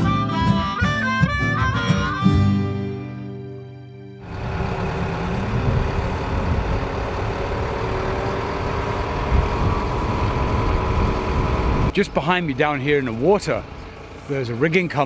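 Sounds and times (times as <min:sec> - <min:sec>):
harmonica tune: 0:00.0 - 0:03.8
crane engine rumbling: 0:04.2 - 0:15.0.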